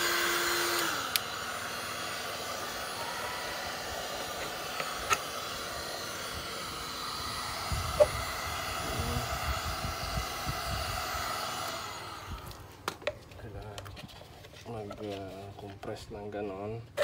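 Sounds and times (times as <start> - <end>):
heat gun blowing: 0.0 - 13.2.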